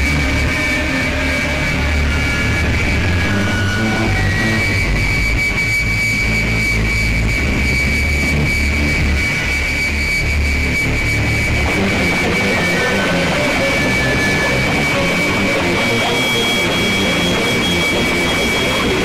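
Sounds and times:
harsh noise wash: 0:00.0 - 0:19.0
high-pitched whine: 0:00.0 - 0:19.0
low droning bass: 0:00.0 - 0:19.0.

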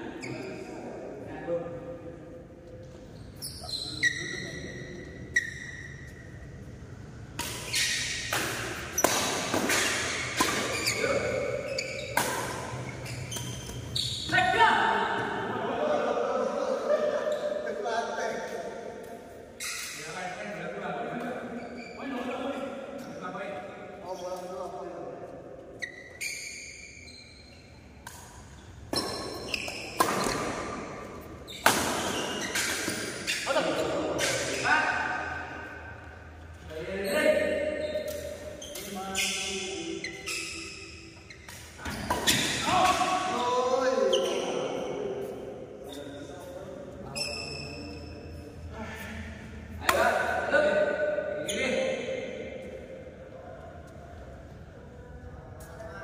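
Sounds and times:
badminton racket hitting shuttlecock: 0:07.4 - 0:13.8.

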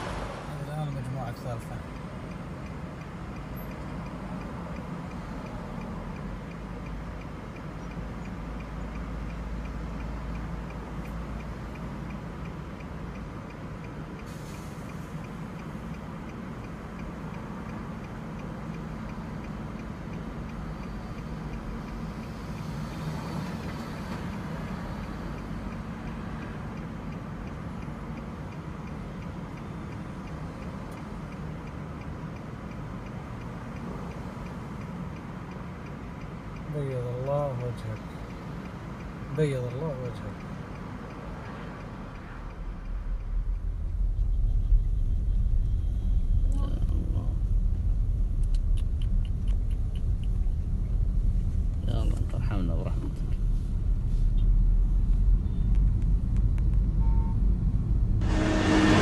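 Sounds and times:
car road and engine noise: 0:00.0 - 0:59.0
light regular ticking: 0:01.0 - 0:44.1.

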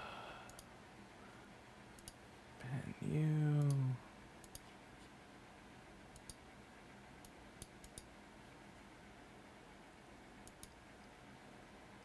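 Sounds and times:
faint computer mouse clicks: 0:00.5 - 0:00.7, 0:02.0 - 0:02.2, 0:04.4 - 0:04.7, 0:06.1 - 0:06.4, 0:07.2 - 0:08.1, 0:10.4 - 0:10.8.

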